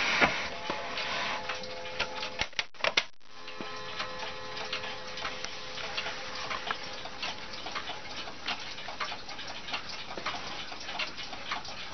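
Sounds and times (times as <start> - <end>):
mantel clock ticking: 3.5 - 11.9.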